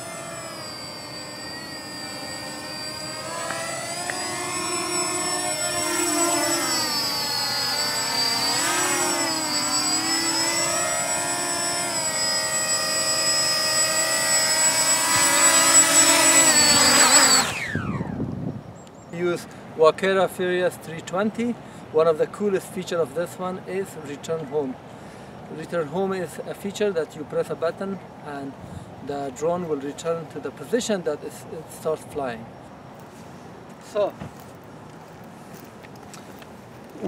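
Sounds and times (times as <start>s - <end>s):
drone propellers whining: 0.0s - 18.7s.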